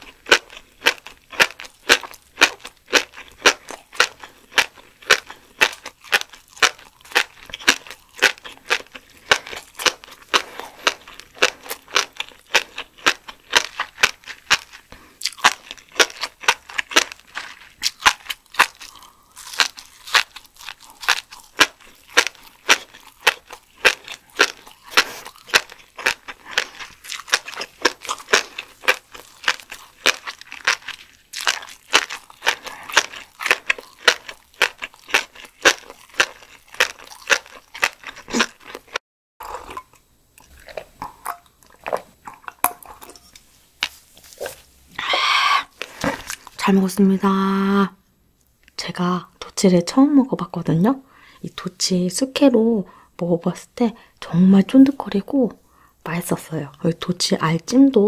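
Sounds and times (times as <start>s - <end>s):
crunchy chewing with popping clicks: 0.0s - 45.1s.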